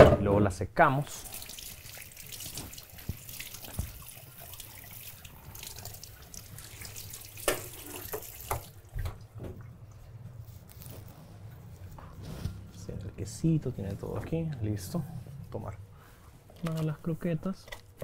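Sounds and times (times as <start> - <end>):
tap running into a sink: 1.8 - 4.6, 6.8 - 9.7.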